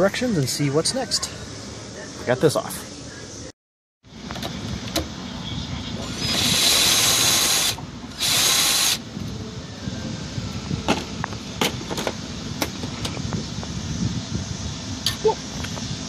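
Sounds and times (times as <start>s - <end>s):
power drill driving socket: 6.1s - 9.0s.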